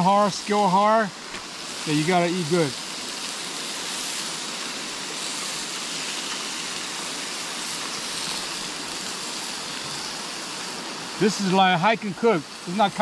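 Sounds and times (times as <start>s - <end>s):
meat sizzling on a grill: 0.0s - 13.0s.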